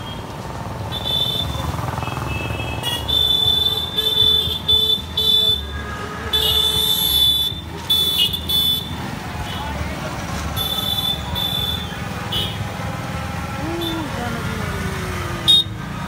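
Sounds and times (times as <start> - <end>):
street traffic rumble: 0.0 - 16.0
electronic vehicle horn beeping: 0.9 - 8.9.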